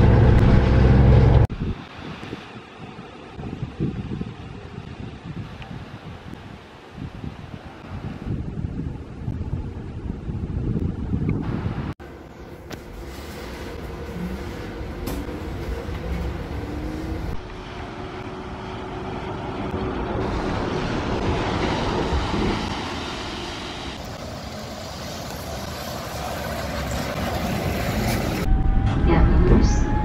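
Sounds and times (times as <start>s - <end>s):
vehicle running noise: 0.0s - 5.6s, 7.7s - 30.0s
bus interior running noise: 0.0s - 30.0s
bus driving past: 12.0s - 30.0s.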